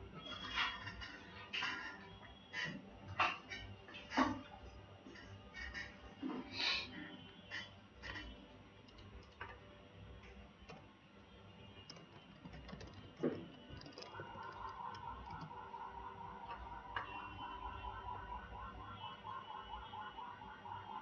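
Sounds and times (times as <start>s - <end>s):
keyboard keystrokes: 11.8s - 15.6s.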